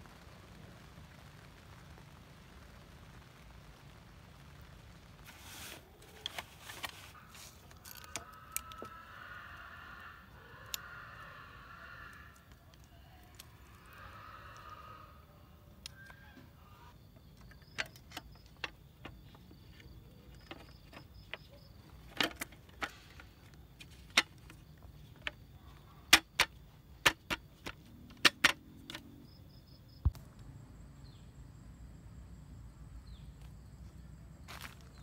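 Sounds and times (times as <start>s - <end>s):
insects chirping: 0.2s - 35.0s
high insect drone: 7.1s - 35.0s
camping table clicking into place: 26.1s - 29.1s.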